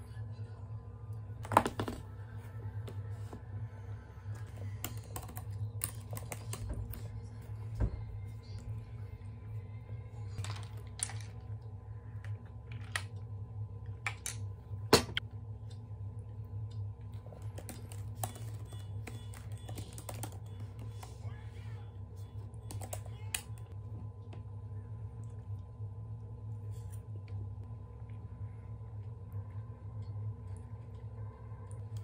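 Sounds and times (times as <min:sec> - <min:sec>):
laptop keyboard typing: 0:04.4 - 0:07.1, 0:17.3 - 0:21.2, 0:22.6 - 0:23.7.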